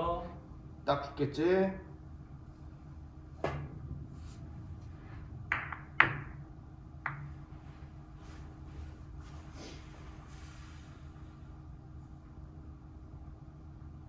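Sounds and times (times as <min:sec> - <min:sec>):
billiard balls clacking: 0:05.4 - 0:06.4, 0:07.0 - 0:07.4
cue striking ball: 0:05.5 - 0:06.4, 0:07.0 - 0:07.3.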